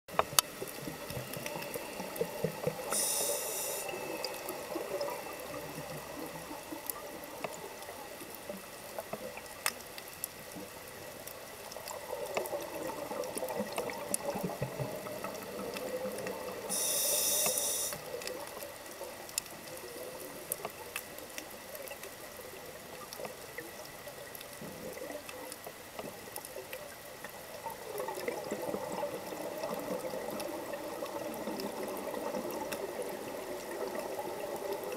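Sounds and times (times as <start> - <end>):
regulator inhalation hiss: 2.8 - 4.2, 16.7 - 18.2.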